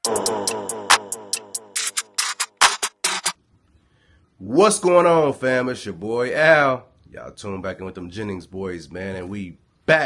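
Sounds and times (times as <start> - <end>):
sharp percussive hits: 0.0 - 3.4.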